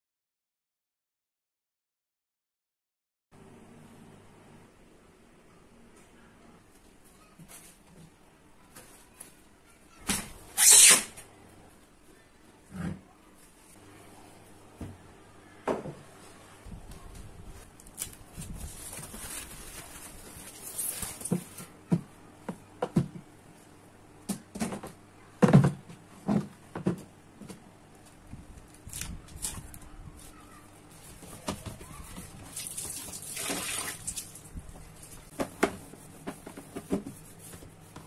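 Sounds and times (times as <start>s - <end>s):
plastic rack knocking and clattering: 22.8s - 23.2s, 24.3s - 27.6s.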